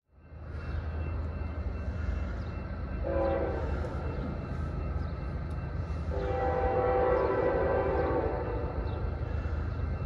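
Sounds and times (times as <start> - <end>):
locomotive air horn blasts: 3.0 - 3.7, 6.1 - 8.7.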